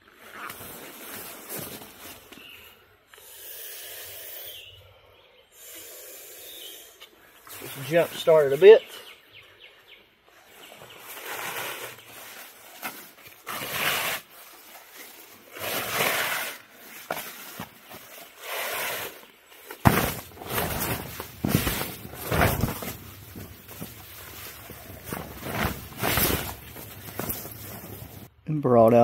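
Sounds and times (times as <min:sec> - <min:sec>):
tarp rustling and crinkling: 0:00.0 - 0:02.6, 0:10.3 - 0:28.3
tarp flapping: 0:11.0 - 0:19.1, 0:19.7 - 0:28.3.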